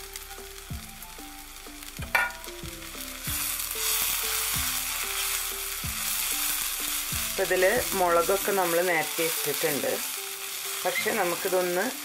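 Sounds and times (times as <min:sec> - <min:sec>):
food sizzling in a frying pan: 0:00.0 - 0:12.0
soft background music: 0:00.0 - 0:12.0
spatula stirring in a pan: 0:02.2 - 0:12.0.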